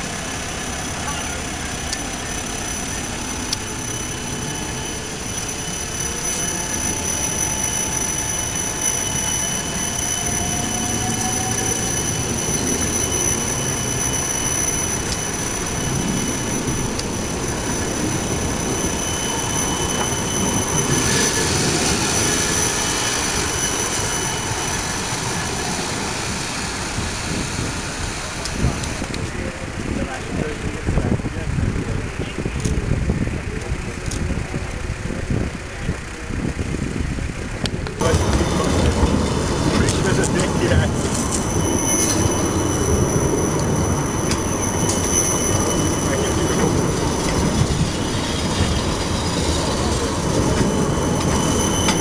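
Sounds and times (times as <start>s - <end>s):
tram rolling on rails: 0.0s - 52.0s
high-pitched tones: 0.5s - 29.6s.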